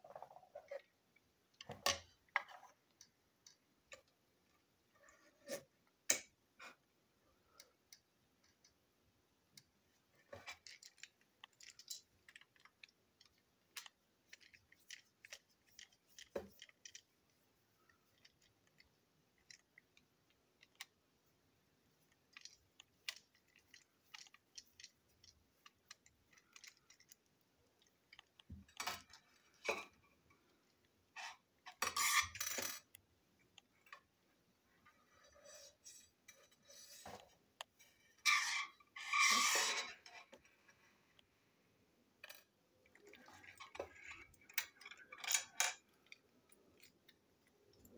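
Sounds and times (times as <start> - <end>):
plastic parts clacking and rattling: 10.2 - 21.0, 22.0 - 33.0, 42.2 - 47.9
small plastic parts clicking: 10.3 - 17.1, 18.1 - 21.0, 22.1 - 29.9.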